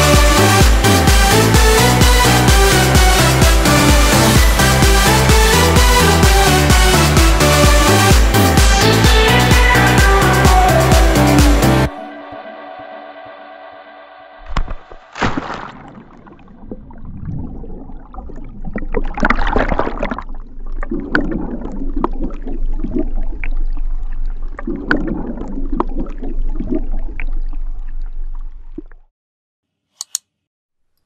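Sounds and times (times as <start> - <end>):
water sloshing and gurgling: 14.4 - 29.1
small clicks: 30.0 - 31.0.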